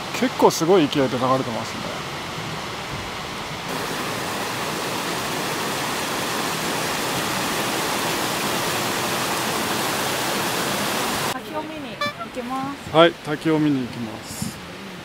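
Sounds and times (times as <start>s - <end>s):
creek cascading over rocks: 3.7s - 15.0s.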